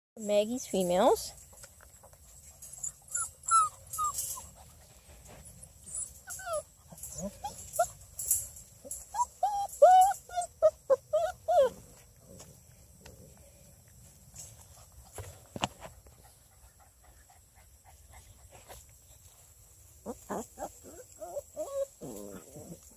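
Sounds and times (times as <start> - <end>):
puppies crying: 2.9 - 4.6, 5.9 - 8.0, 8.9 - 11.8, 20.1 - 22.5.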